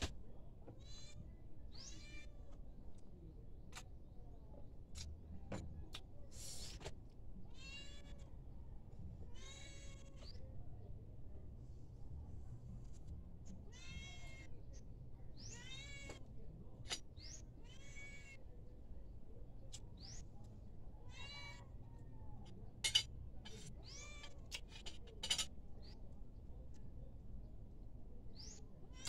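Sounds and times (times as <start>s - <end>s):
cutlery clinking on plate: 22.8s - 23.1s.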